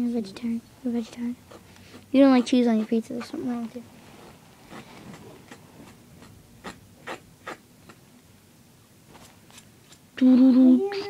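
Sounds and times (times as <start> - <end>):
scratchy rubbing strokes: 1.0 - 8.0.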